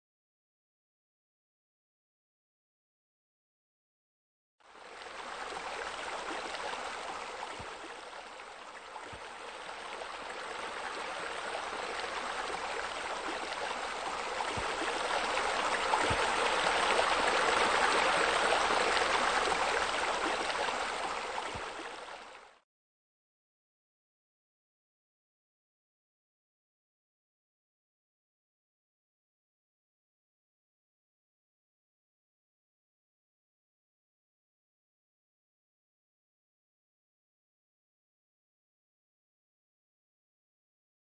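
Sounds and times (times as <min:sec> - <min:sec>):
running water splashing: 0:05.0 - 0:22.4.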